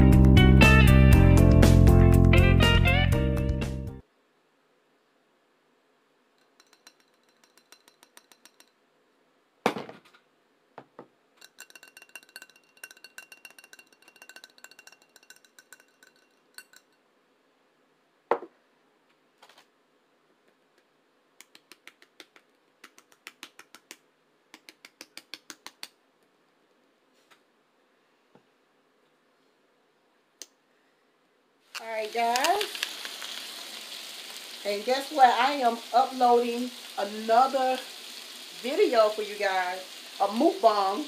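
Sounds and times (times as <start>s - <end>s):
cookware clicks and clinks: 6.4s - 8.8s, 11.4s - 17.0s.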